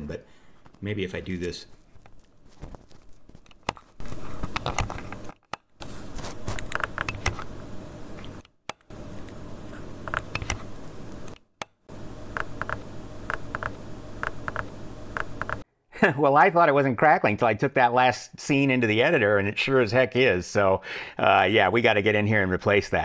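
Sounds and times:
low steady hum: 0.0s - 16.2s.

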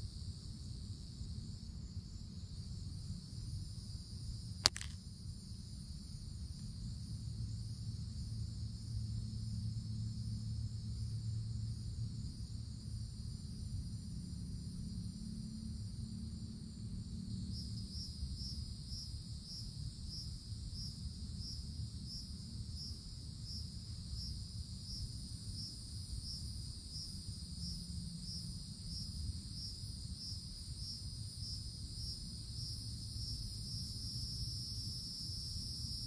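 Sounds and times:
cicadas buzzing: 4.1s - 36.0s
pulsing cicada call: 7.8s - 36.0s.

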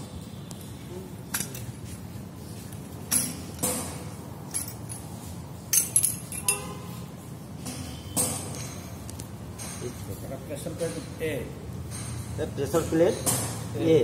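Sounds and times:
metal clutch parts clinking: 3.1s - 6.8s.

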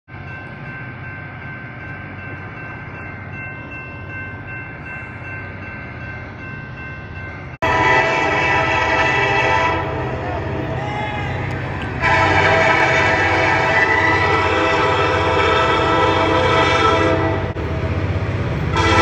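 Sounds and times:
locomotive horn: 7.6s - 17.6s, 18.7s - 19.0s.

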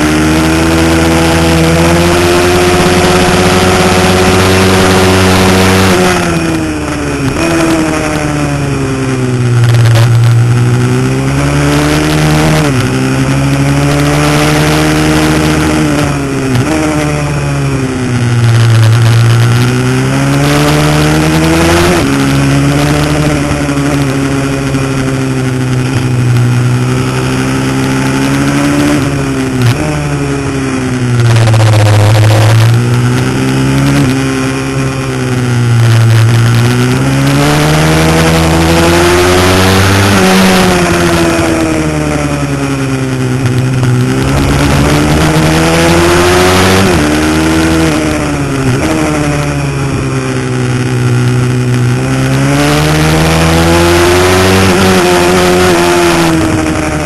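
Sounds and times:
motorbike engine revving: 0.0s - 57.0s
wind on microphone: 43.4s - 48.2s.

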